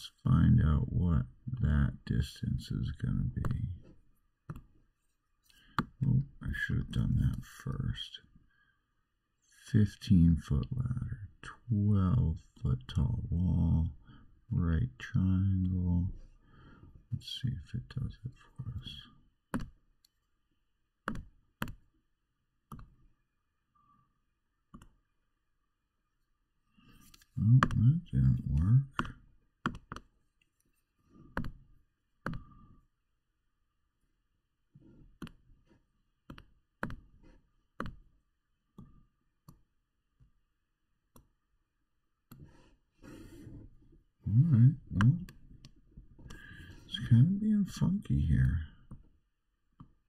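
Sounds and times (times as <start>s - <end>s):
computer mouse clicks: 22.7s - 23.0s.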